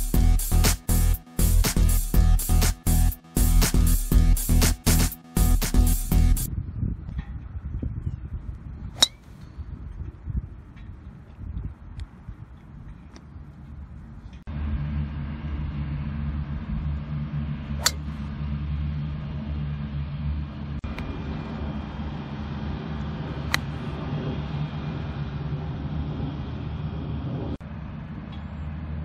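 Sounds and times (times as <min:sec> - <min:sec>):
low mechanical rumble: 0:00.0 - 0:29.0
golf club striking ball: 0:08.9 - 0:09.6, 0:17.8 - 0:18.2, 0:23.5 - 0:23.7.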